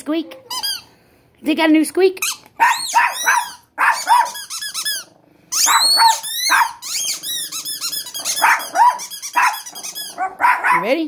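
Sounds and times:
rubber squeaky toy squeaking: 0:00.3 - 0:00.9, 0:02.2 - 0:10.4.

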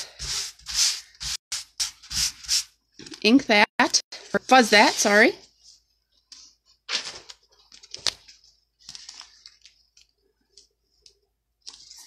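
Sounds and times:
plastic stencil rustling and crinkling: 0:04.1 - 0:12.0.

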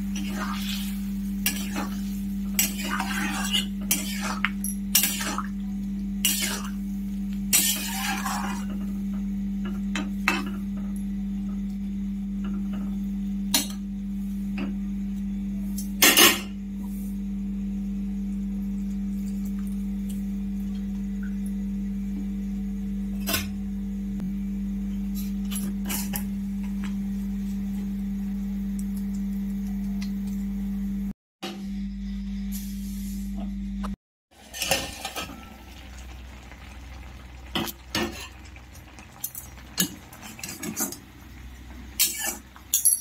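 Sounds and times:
steady low hum: 0:00.0 - 0:34.0
ladle scraping metal pot: 0:07.5 - 0:08.7, 0:34.4 - 0:35.4
utensils clinking and knocking: 0:42.7 - 0:43.0.

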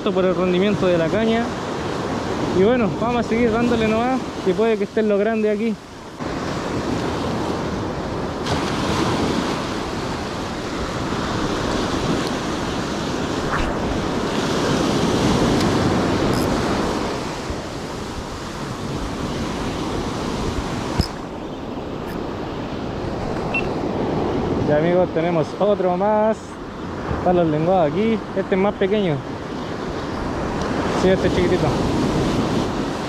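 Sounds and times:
surf breaking on rocky shore: 0:00.3 - 0:25.4
wind on microphone: 0:06.0 - 0:24.7, 0:29.4 - 0:33.0
sharp click: 0:21.0 - 0:21.2.

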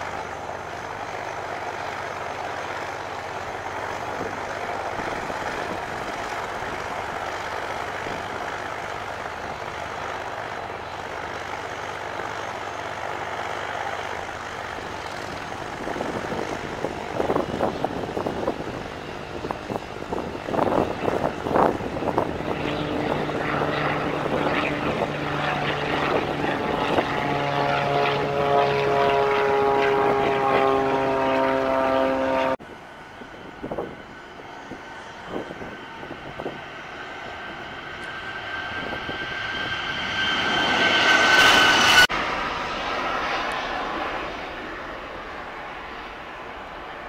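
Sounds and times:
jet engine whine: 0:00.0 - 0:47.0
jet taking off: 0:00.0 - 0:47.0.

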